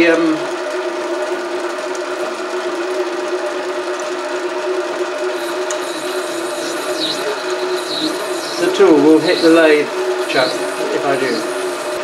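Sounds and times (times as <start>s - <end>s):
lathe whining: 5.2s - 12.0s.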